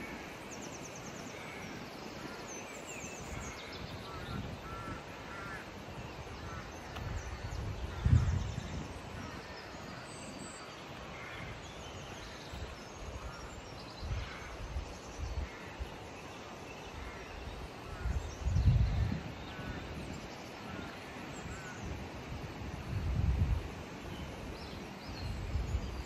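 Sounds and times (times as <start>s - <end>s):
wind buffeting microphone: 0.0s - 16.1s, 16.8s - 26.0s
birdsong: 0.0s - 26.0s
outdoor hiss: 0.0s - 26.0s
crows cawing: 3.4s - 5.8s.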